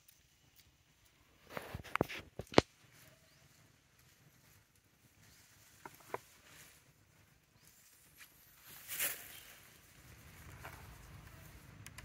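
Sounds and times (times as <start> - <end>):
dry leaves crackling: 7.6 - 11.8.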